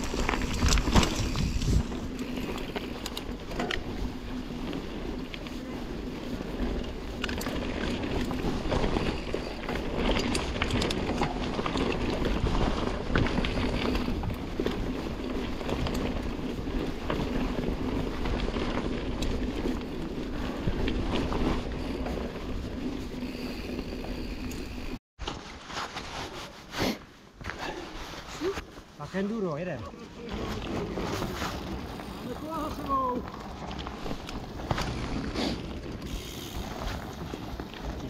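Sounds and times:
wind buffeting microphone: 0:00.0 - 0:02.3
tyres rumbling on trail: 0:00.0 - 0:25.0, 0:27.4 - 0:38.0
bike clicks and rattles: 0:00.0 - 0:25.6, 0:29.9 - 0:38.0.

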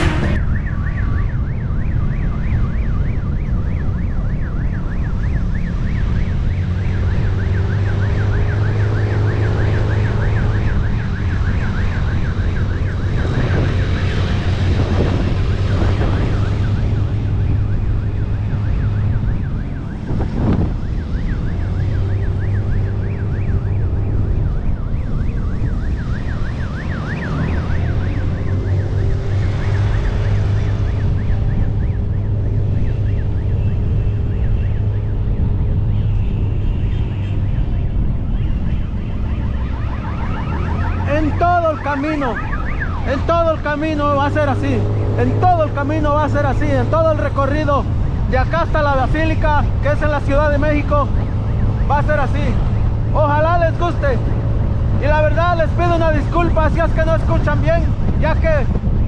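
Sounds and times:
siren yelping: 0:00.0 - 0:58.9
wind on microphone: 0:10.3 - 0:23.1, 0:56.5 - 0:59.0.

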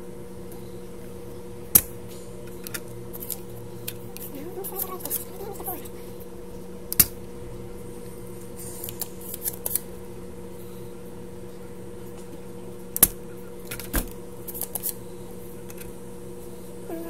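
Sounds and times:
steady low hum: 0:00.0 - 0:17.0
desoldering pump snapping and clicking: 0:06.9 - 0:07.3, 0:12.2 - 0:15.0.

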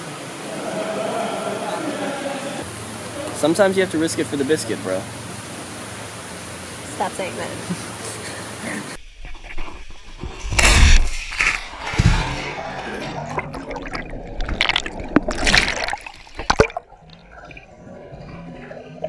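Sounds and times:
underwater bubbling and churning: 0:11.1 - 0:19.0
water sloshing: 0:11.1 - 0:19.0.

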